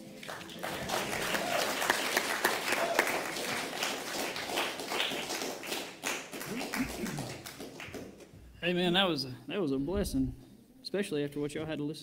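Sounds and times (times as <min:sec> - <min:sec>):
congregation clapping: 0:00.0 - 0:08.4.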